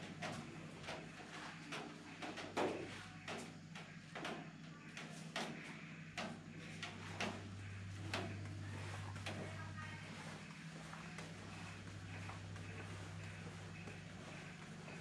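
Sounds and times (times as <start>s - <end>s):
low hum: 2.8s - 15.0s
footsteps on concrete: 6.8s - 15.0s.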